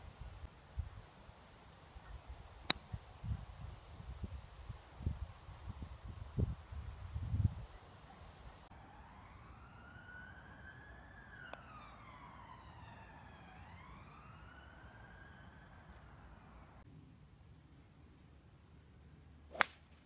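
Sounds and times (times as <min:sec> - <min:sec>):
faint siren wailing: 0:08.7 - 0:16.8.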